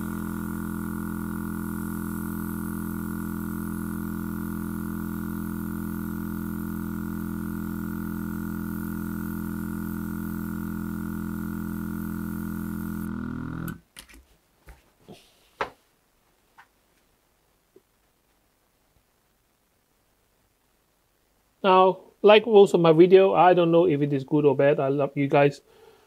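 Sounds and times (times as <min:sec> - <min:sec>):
airbrush spraying: 0:00.0 - 0:13.1
airbrush compressor motor humming: 0:00.0 - 0:13.8.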